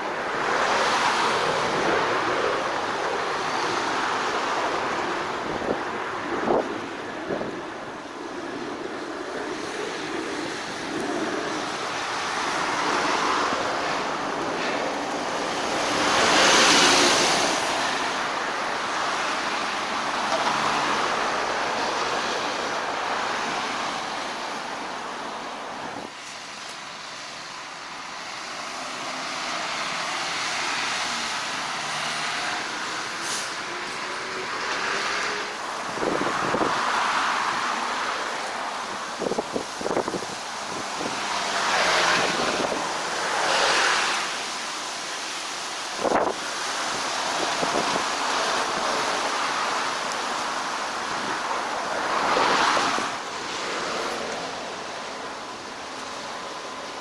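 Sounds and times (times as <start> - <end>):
road traffic rushing: 0.0 - 57.0
wind: 0.0 - 57.0.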